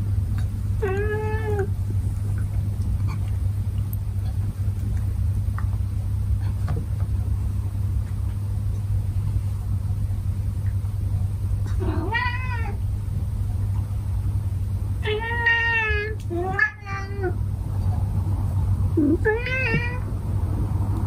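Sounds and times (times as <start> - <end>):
steady low hum: 0.0 - 21.0
cat meowing: 0.8 - 1.7, 11.7 - 12.8, 15.0 - 17.4, 19.0 - 20.1.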